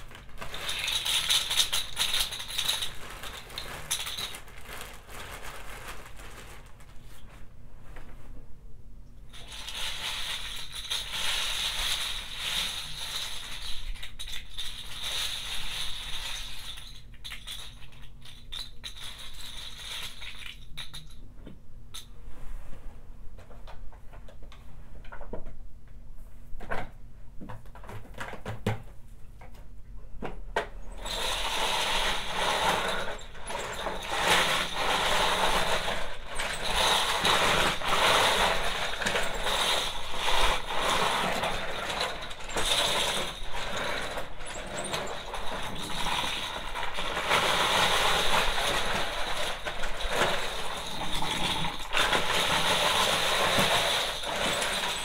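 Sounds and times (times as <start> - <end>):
caps rattling in vacuum nozzle: 0.0 - 4.6, 31.0 - 55.0
plastic bottle caps clattering: 0.0 - 5.1, 9.4 - 21.2, 31.1 - 55.0.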